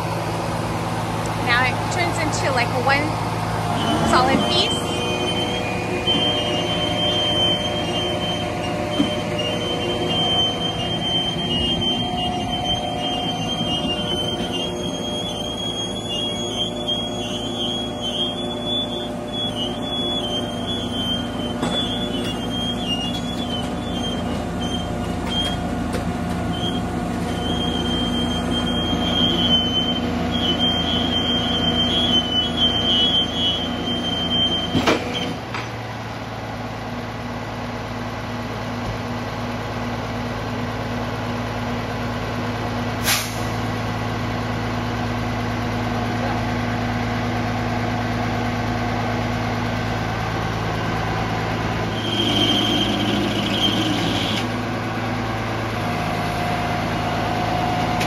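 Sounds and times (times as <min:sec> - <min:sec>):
truck engine running: 0:00.0 - 0:58.0
winch squealing: 0:03.7 - 0:25.8, 0:26.4 - 0:35.4, 0:51.8 - 0:54.6.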